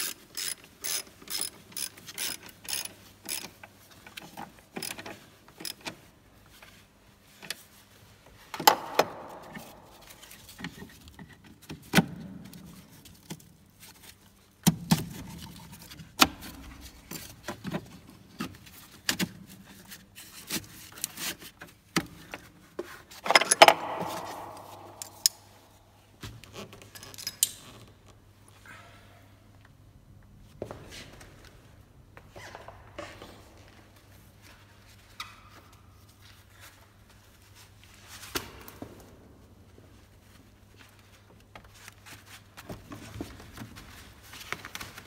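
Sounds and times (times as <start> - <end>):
clicks and knocks of parts: 23.2 - 25.6.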